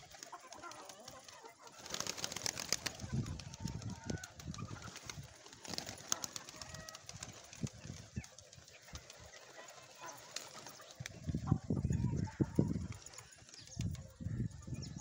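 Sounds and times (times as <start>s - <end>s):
pigeon wings flapping: 0.0s - 11.4s.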